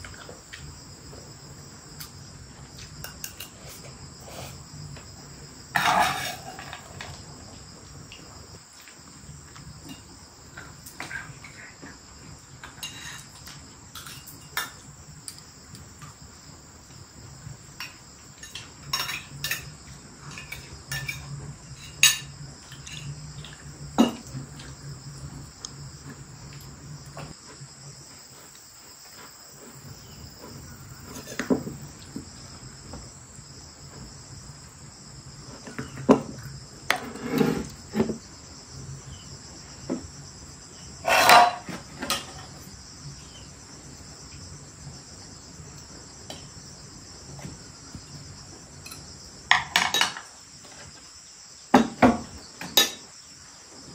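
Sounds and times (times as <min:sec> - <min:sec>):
high-pitched insect chorus: 0:00.0 - 0:53.9
kitchenware clinking and knocking: 0:18.4 - 0:19.7, 0:24.0 - 0:24.3, 0:41.0 - 0:42.5, 0:48.9 - 0:50.3, 0:51.8 - 0:53.0.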